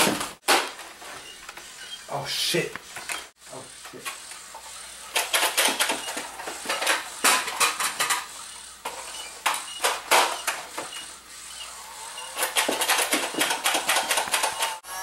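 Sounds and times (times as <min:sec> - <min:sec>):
toy blaster plastic clacks and pops: 0:12.4 - 0:14.8.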